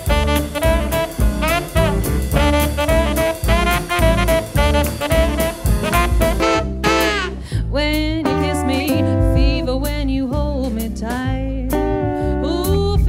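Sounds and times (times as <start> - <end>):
steady drum beat: 0.0 - 7.4, 8.0 - 11.9
guitar chords: 0.0 - 7.5, 8.2 - 9.8
saxophone phrase: 0.0 - 7.5
walking double bass: 0.0 - 13.0
woman singing with vibrato: 7.7 - 13.0.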